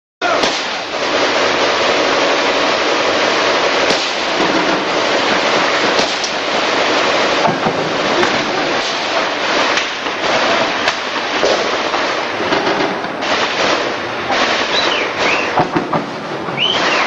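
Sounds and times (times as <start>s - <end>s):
sharp gunshot cracks: 0.2s - 1.0s, 3.8s - 6.7s, 7.4s - 17.0s
combat gunfire crackling: 0.2s - 17.0s.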